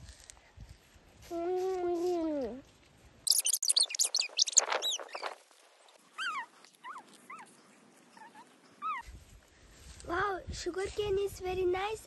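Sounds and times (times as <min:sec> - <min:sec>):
animal whimpering calls: 0:03.3 - 0:05.3.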